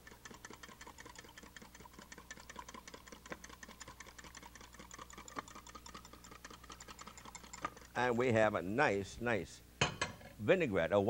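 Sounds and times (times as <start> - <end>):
whisk clicking against glass cup: 0.0 - 8.2.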